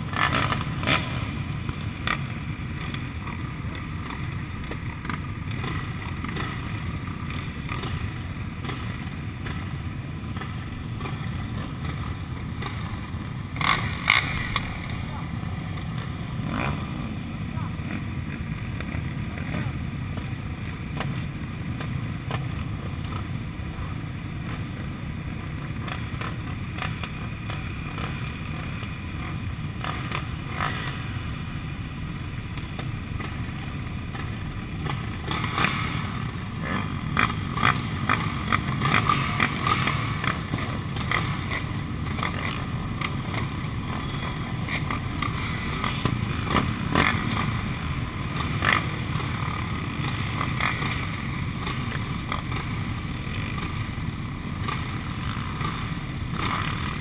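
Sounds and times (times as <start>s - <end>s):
quad engines idling: 0.0s - 57.0s.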